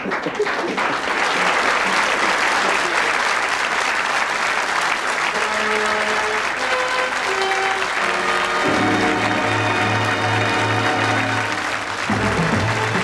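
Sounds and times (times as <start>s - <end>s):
audience applauding: 0.0s - 13.0s
music of long held notes: 5.3s - 13.0s.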